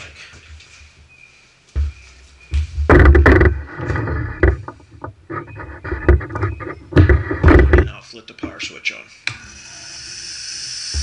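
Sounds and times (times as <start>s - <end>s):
handling knocks and rustling: 1.8s - 8.6s.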